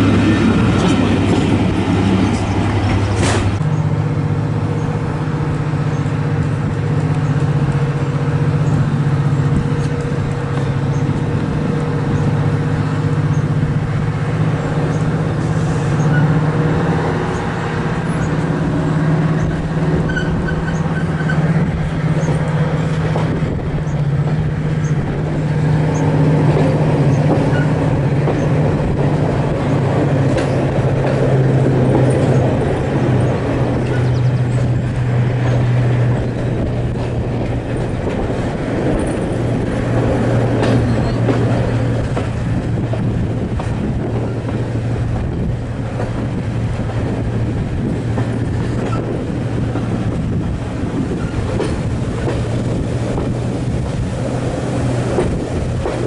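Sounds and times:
diesel locomotive engine humming: 0.0s - 56.0s
sharp clunk: 3.2s - 3.6s.

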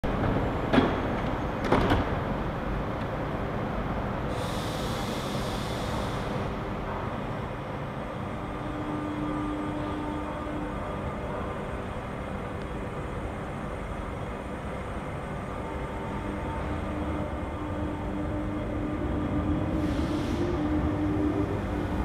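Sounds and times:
train rumbling: 0.0s - 22.0s
train doors knocking shut: 0.2s - 2.3s.

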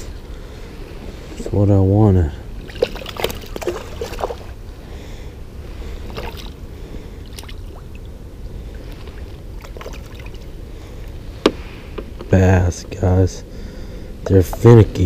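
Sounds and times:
steady low rumble: 0.0s - 15.0s
water sloshing: 2.4s - 4.9s, 5.6s - 12.2s
fish splashing at surface: 2.6s - 4.5s, 6.1s - 6.6s, 8.9s - 10.4s.

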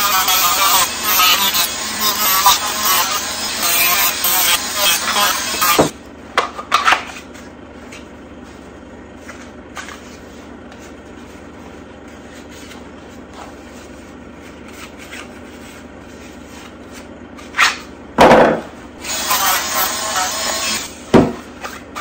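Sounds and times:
rotary tool sanding: 0.0s - 5.9s, 19.0s - 21.0s.

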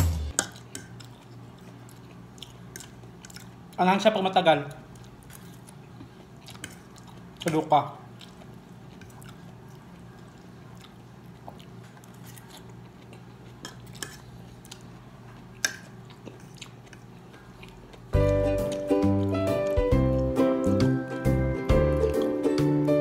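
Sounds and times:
loud music: 0.0s - 0.3s, 18.2s - 23.0s
chewing: 0.4s - 3.8s, 4.7s - 20.4s.

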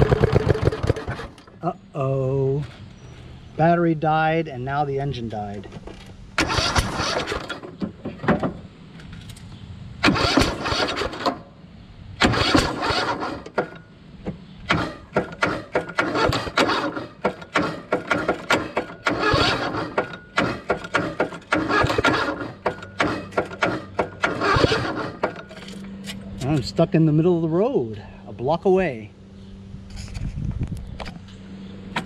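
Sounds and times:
engine cranking without starting: 0.0s - 1.6s, 5.8s - 9.4s, 10.0s - 11.5s, 12.2s - 13.9s, 14.6s - 26.8s.

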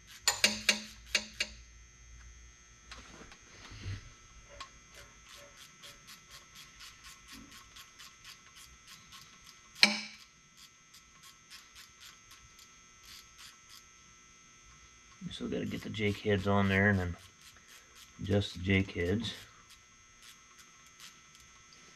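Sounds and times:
metallic clank of hand tool: 0.3s - 1.6s, 9.8s - 10.2s.

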